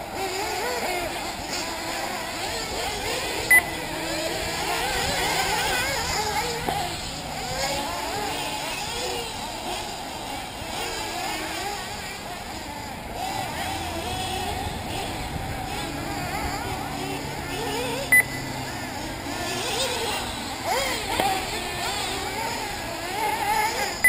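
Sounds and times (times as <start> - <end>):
model buggy engines revving: 0.0 - 24.0
short loud beep: 18.1 - 18.4.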